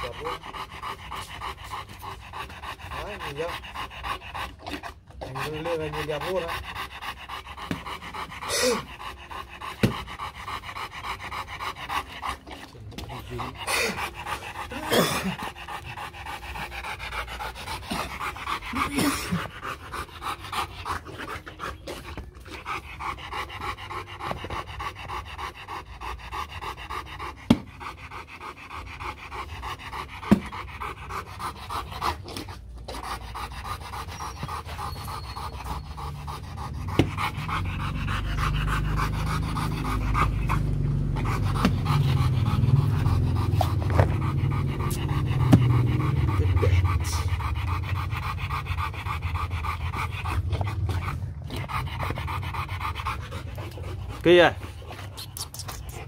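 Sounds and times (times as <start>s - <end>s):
dog panting: 0.0s - 56.0s
low rumble: 35.9s - 54.8s.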